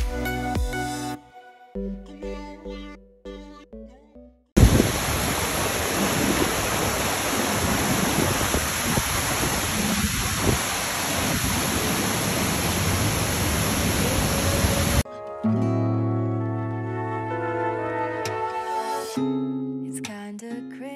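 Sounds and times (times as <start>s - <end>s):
water rushing over rocks: 4.6s - 15.0s.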